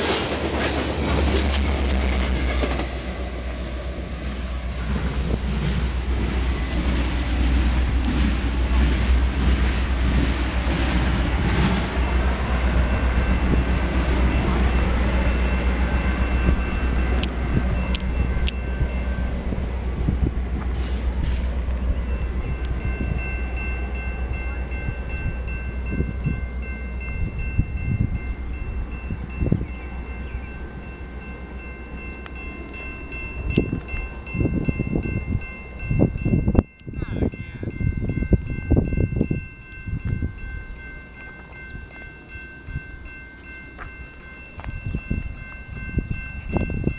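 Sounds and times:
train rumbling past: 0.0s - 46.9s
wind buffeting microphone: 4.1s - 30.9s, 32.0s - 46.9s
faint high-pitched ringing tone: 21.7s - 46.9s.

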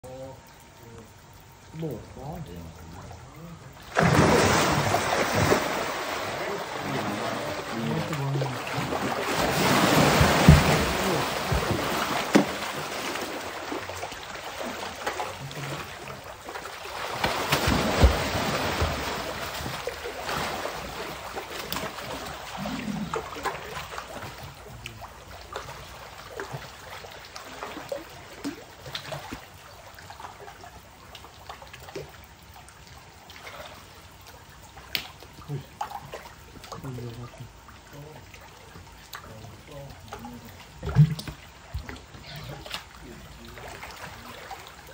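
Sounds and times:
water sloshing and lapping: 0.0s - 44.9s
crocodile thrashing heavy splashes: 3.8s - 24.3s.

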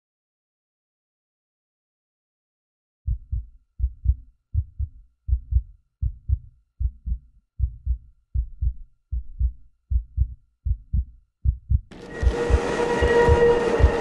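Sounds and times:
heartbeat thumps: 3.1s - 14.0s.

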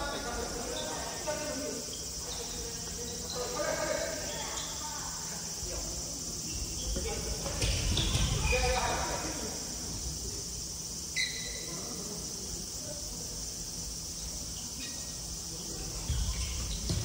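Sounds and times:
high-pitched insect drone: 0.0s - 17.0s
sneaker squeak on wooden floor: 6.5s - 8.9s, 11.2s - 11.7s, 15.8s - 17.0s.

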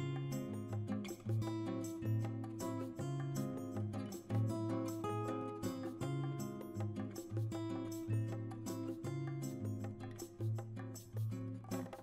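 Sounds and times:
plucked guitar: 0.0s - 12.0s.

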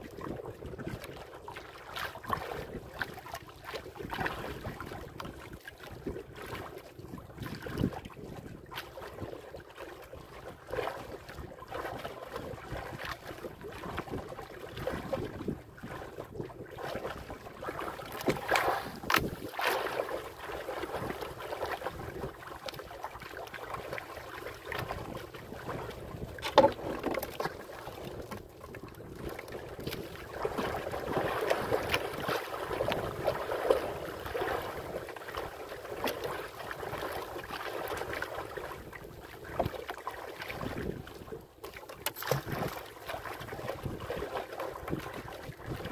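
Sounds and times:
water splashing against boat hull: 0.0s - 45.9s
wind buffeting microphone: 14.0s - 17.4s, 18.0s - 19.6s.

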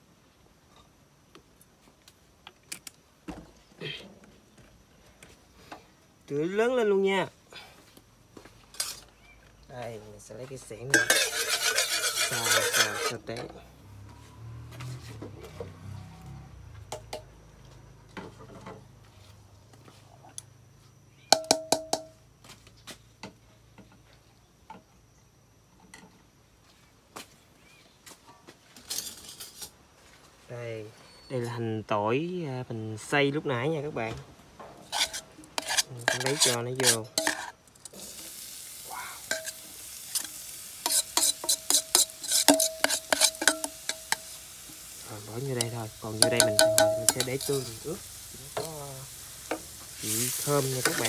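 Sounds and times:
spatula scraping cooking pan: 8.6s - 9.2s, 10.8s - 13.6s, 34.6s - 38.4s, 39.2s - 51.0s
food sizzling in hot oil: 10.6s - 13.3s, 34.8s - 51.0s
ringing metal taps: 21.3s - 22.2s, 46.2s - 47.4s
metal clinks: 46.2s - 47.6s.

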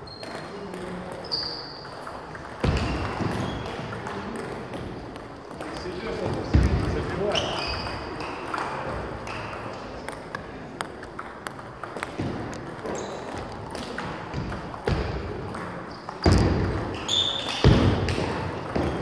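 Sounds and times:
table tennis ball clicking: 8.4s - 16.2s.

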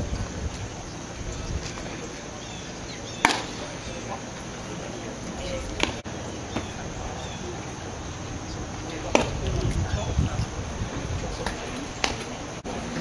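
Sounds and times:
outdoor background hum: 0.0s - 13.0s
baseball cracking sharply: 3.2s - 3.8s.

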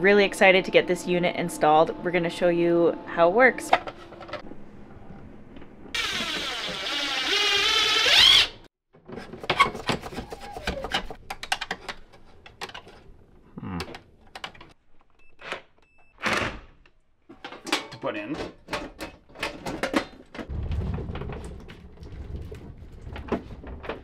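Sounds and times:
cordless drill whining: 6.0s - 8.6s
tools rattling in metal box: 17.4s - 20.5s.

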